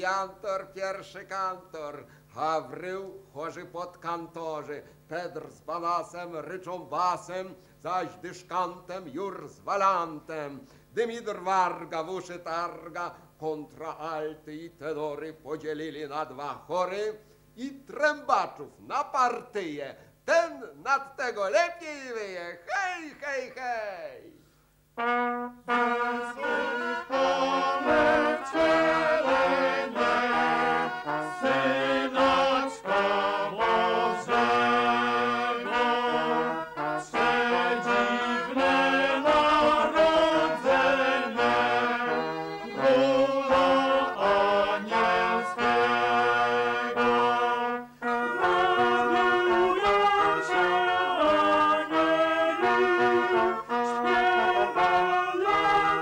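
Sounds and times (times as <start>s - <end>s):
recorders and trombones playing: 25.0s - 56.0s
men singing: 25.9s - 47.6s, 48.2s - 56.0s.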